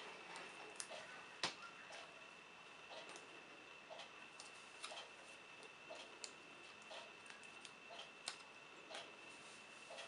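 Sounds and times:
faint high whine: 0:00.0 - 0:10.0
faint regular ticking: 0:02.8 - 0:10.0.

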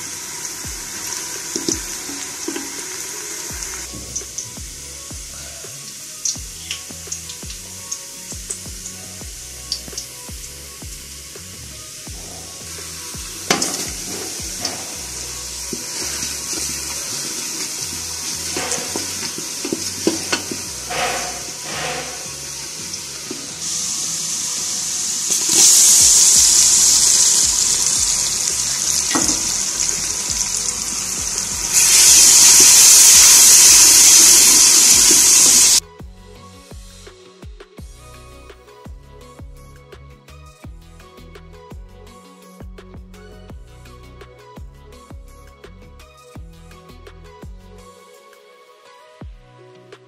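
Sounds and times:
sauce sizzling in hot oil: 0:00.0 - 0:35.8
utensils knocking: 0:28.7 - 0:30.4.

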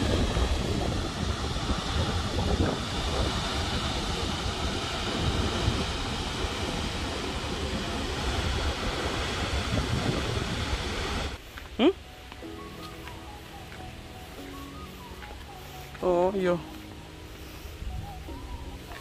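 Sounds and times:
wind buffeting the microphone: 0:00.0 - 0:11.5, 0:14.3 - 0:19.0
waterfall roaring: 0:00.0 - 0:11.6.

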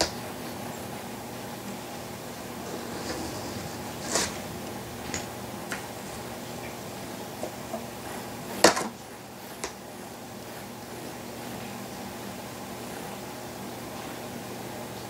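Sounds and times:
low room tone hum: 0:01.8 - 0:09.1.

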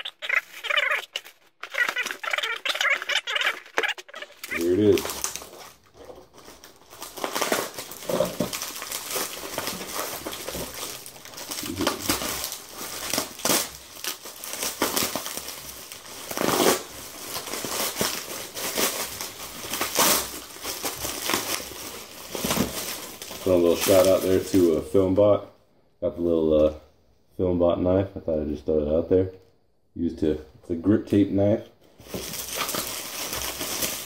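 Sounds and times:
plastic wrapping crinkling: 0:00.0 - 0:24.8, 0:32.0 - 0:34.0.

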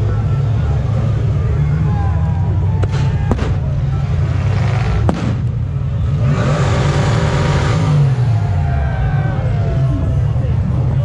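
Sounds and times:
truck engine revving under load: 0:00.0 - 0:11.0
sharp bangs: 0:02.8 - 0:03.9, 0:04.5 - 0:05.9.

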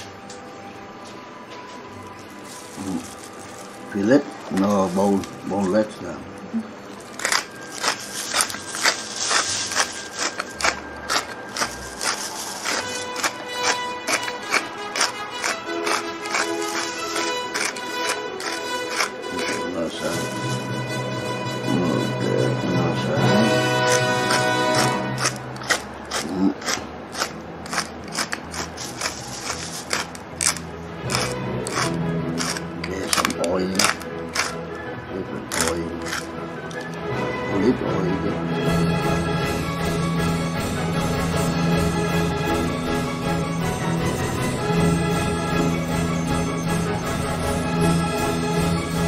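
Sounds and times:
rustling plastic bag strokes: 0:02.2 - 0:20.2, 0:27.7 - 0:32.6
pepper grinder crunching peppercorns: 0:02.4 - 0:20.5, 0:23.3 - 0:34.6, 0:35.5 - 0:37.0.

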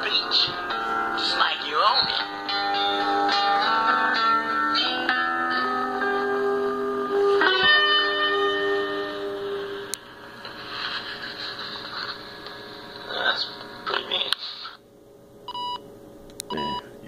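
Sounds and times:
guitar ringing chords: 0:00.0 - 0:10.2.

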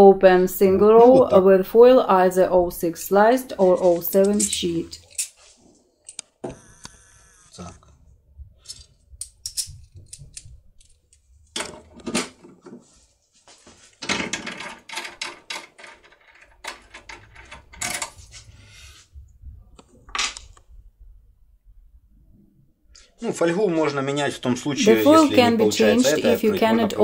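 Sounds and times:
metallic clicks of keys and tool: 0:08.6 - 0:11.0.

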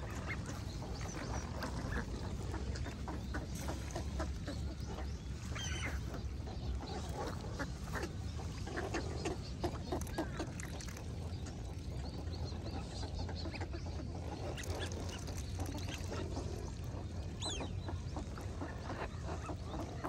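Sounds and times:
ducks quacking: 0:00.0 - 0:20.0
steady low rumble: 0:00.0 - 0:20.0.

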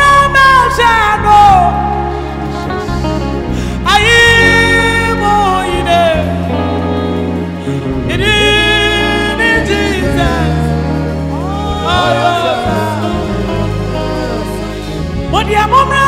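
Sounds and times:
woman singing: 0:00.0 - 0:02.0, 0:08.1 - 0:16.0
instrumental backing: 0:00.0 - 0:16.0.

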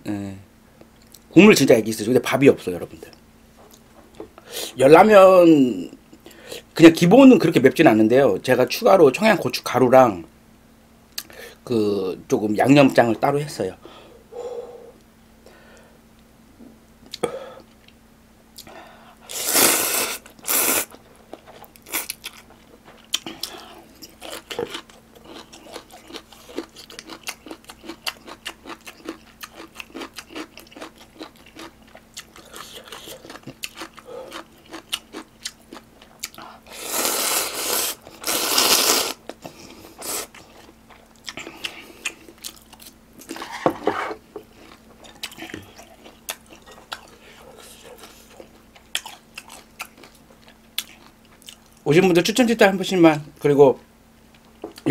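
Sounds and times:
noodle slurping: 0:19.3 - 0:21.0, 0:36.7 - 0:39.2
wet chewing: 0:19.9 - 0:51.8.

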